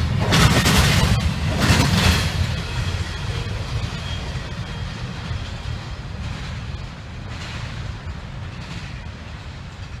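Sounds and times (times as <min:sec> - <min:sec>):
train wheels rumbling on rail: 0:00.0 - 0:10.0.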